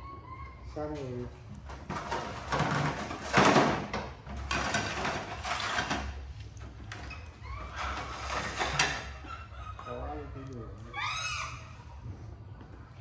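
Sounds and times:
baby monkey crying: 0.0s - 0.8s, 7.4s - 8.1s, 9.1s - 12.0s.

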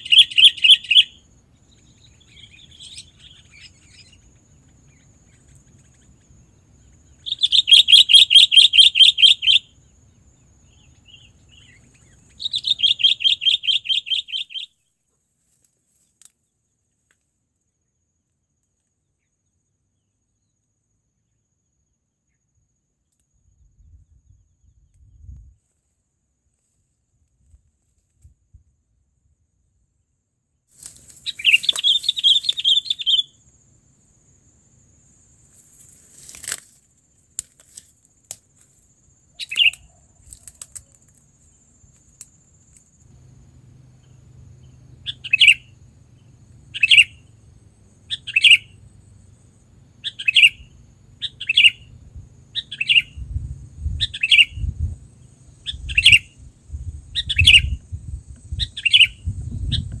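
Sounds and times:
bird calling: 0.0s - 9.8s, 10.7s - 14.8s, 31.2s - 33.4s, 39.3s - 40.7s, 44.0s - 48.8s, 50.0s - 53.2s, 54.0s - 54.7s, 55.6s - 56.4s, 58.5s - 60.0s.

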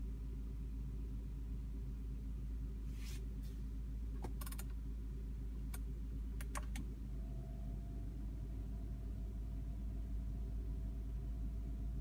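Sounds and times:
steady low hum: 0.0s - 12.0s
faint steady tone: 6.9s - 12.0s.

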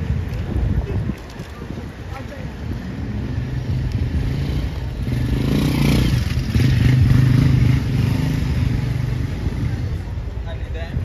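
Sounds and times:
vehicle engine passing: 2.9s - 10.0s.

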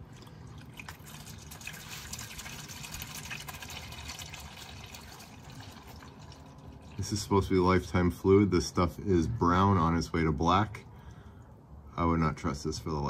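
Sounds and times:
fluid trickling into a pan: 0.0s - 7.4s.

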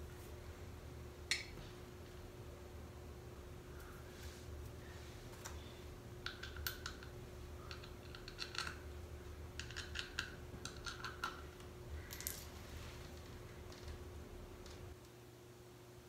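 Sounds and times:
small metal parts clicking: 6.2s - 8.9s, 9.6s - 12.5s.

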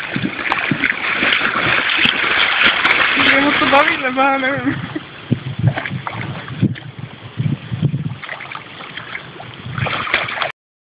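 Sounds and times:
dog splashing in water: 0.0s - 4.1s, 8.2s - 10.5s.

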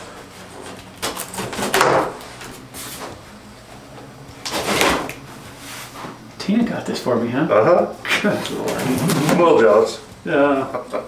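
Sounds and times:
cardboard box scraping open: 8.4s - 9.6s.

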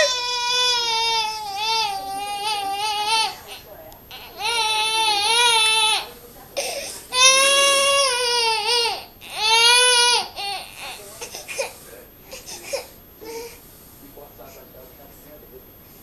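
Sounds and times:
infant sobbing faintly: 0.0s - 6.8s
infant crying: 0.0s - 11.7s.

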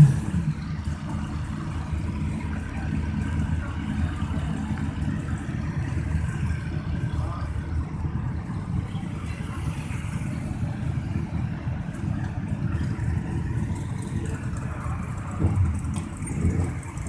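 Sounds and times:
motorcycle engines idling: 0.0s - 17.0s.

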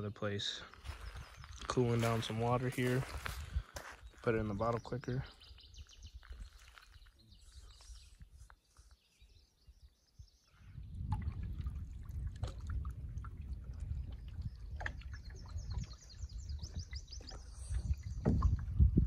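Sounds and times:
wind rumble on microphone: 0.8s - 4.2s, 9.7s - 19.0s
water against canoe hull: 10.8s - 19.0s.

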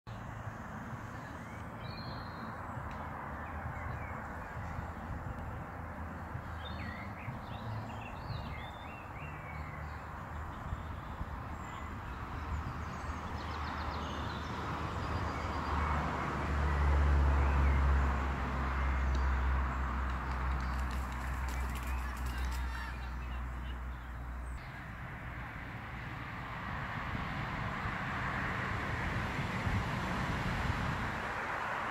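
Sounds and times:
birds calling: 18.6s - 25.0s.

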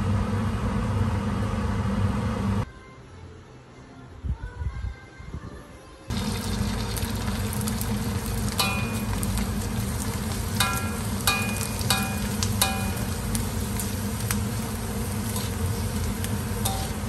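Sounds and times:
crackers sizzling in hot oil: 6.1s - 17.0s
metal skimmer clinking against wok: 8.5s - 17.0s.

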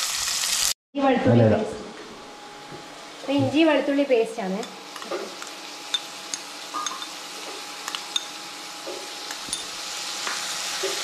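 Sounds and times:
onions sizzling in oil: 0.0s - 0.8s, 4.1s - 11.0s
spoon clinking against bowl: 5.9s - 7.2s, 8.1s - 8.4s.

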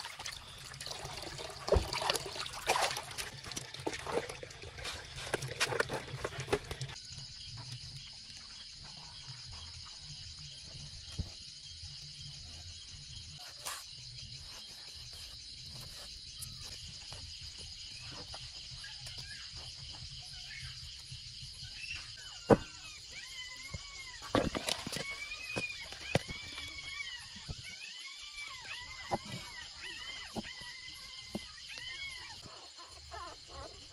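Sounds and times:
crickets chirping: 0.0s - 33.9s.

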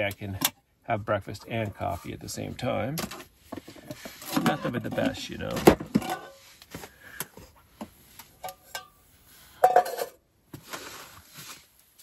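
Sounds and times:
metal pot and utensils clinking: 4.0s - 6.4s, 8.4s - 9.0s
metal pot clatter: 4.2s - 6.4s.

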